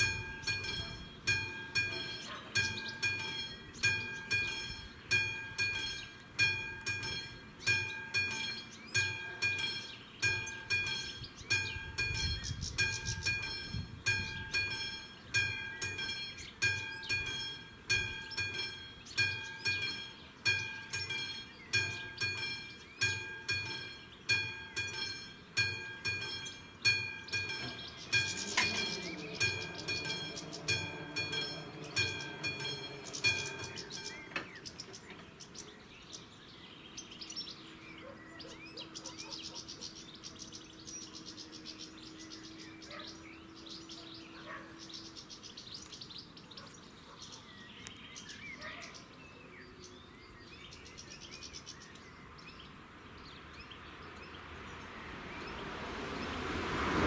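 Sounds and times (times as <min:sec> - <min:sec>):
level crossing bell ringing: 0:00.0 - 0:34.6
approaching train: 0:00.0 - 0:45.8, 0:53.5 - 0:57.0
birds chirping: 0:00.0 - 0:57.0.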